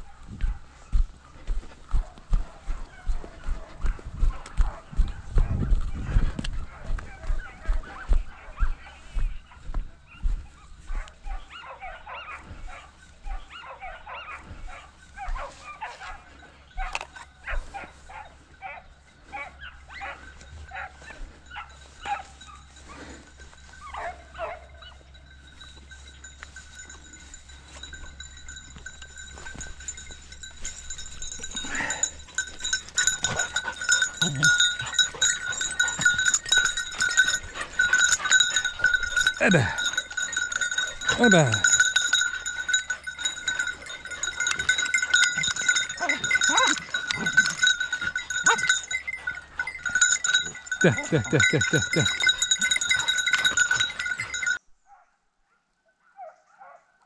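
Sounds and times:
dog barking and yelping: 2.0 - 25.8, 26.8 - 55.1, 56.0 - 57.0
collar bells jingling: 14.7 - 54.7
steady high ringing: 20.4 - 54.6.

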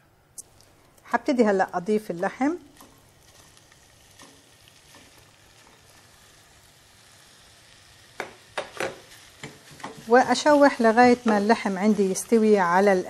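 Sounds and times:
meat sizzling in a pot: 1.2 - 13.0.

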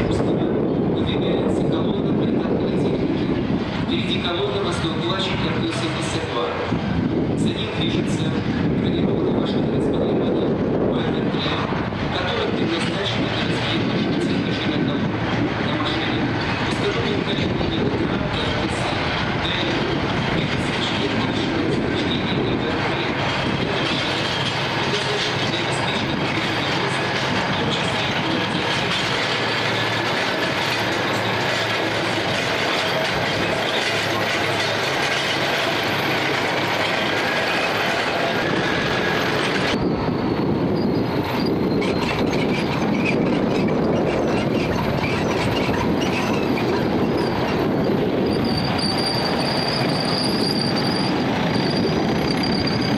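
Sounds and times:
tank tracks clattering: 22.8 - 39.8, 40.8 - 52.9.

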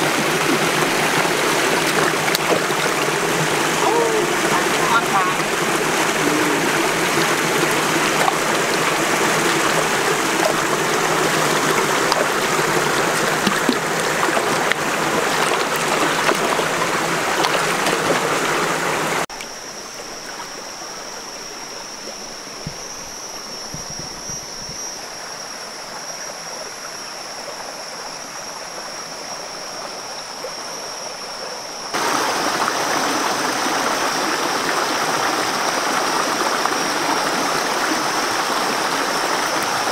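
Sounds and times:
stream rushing over stones: 0.0 - 19.5, 31.9 - 39.9
steady high-pitched whine: 18.4 - 39.9.

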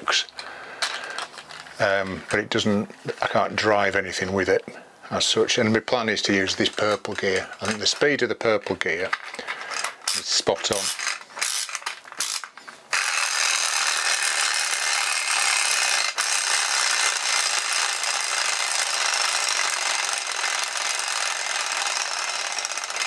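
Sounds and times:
clockwork motor gear whirr: 10.8 - 23.0.

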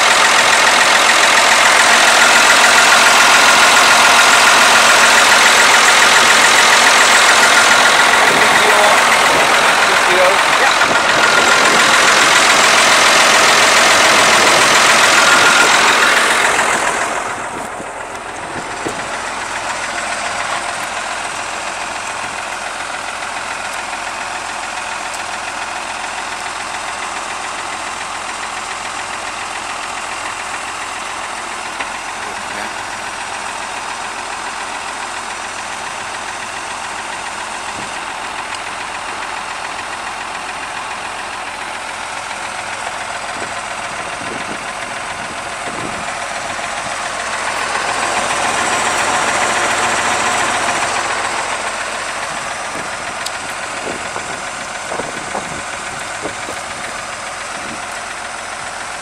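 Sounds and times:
tractor diesel engine idling: 0.0 - 59.0.

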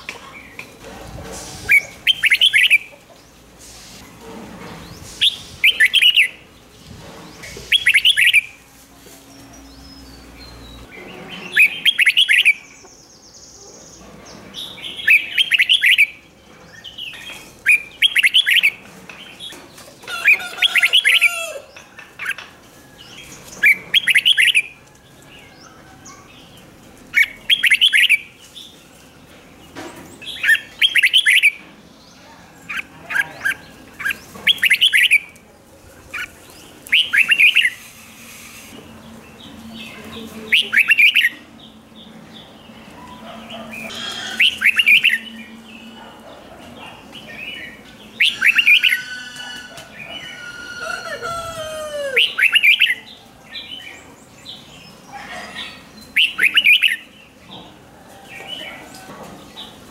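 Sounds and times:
bird singing warbled phrases: 1.7 - 3.0, 9.7 - 16.2, 16.8 - 19.6, 23.6 - 24.8, 25.6 - 28.8, 30.2 - 31.6, 32.6 - 35.4, 36.0 - 37.8, 39.0 - 46.2, 46.8 - 57.4.

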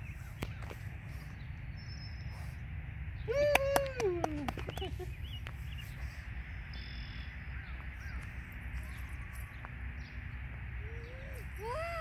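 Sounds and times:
steady low rumble: 0.0 - 12.0
faint bird chirps: 6.6 - 10.2.

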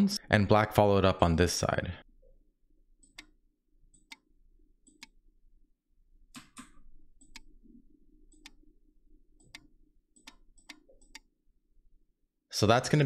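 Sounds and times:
computer mouse clicks: 3.0 - 5.2, 6.3 - 7.5, 8.3 - 8.6, 9.4 - 11.3.

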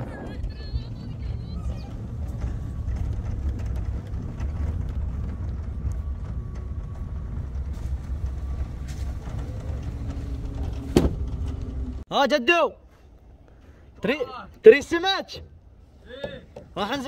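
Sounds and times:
car engine and tyres rumbling: 0.0 - 12.1.

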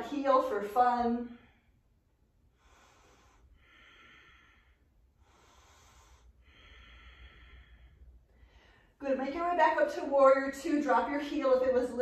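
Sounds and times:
woman breathing slowly: 1.2 - 9.0.

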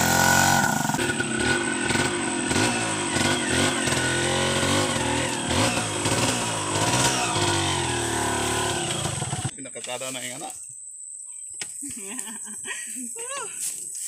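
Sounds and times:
two-stroke motorcycle engine revving: 0.0 - 9.5.

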